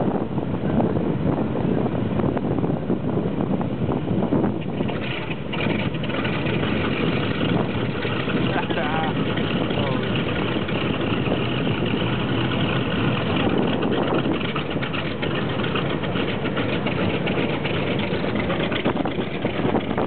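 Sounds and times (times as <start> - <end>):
radial aircraft engines idling: 4.6 - 20.0.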